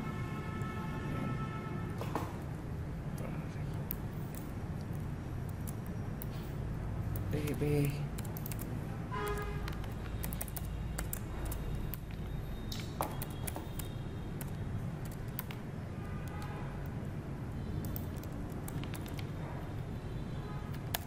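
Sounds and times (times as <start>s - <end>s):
low background hum: 0.0s - 21.0s
keyboard key clicks: 9.3s - 15.6s, 17.8s - 19.3s.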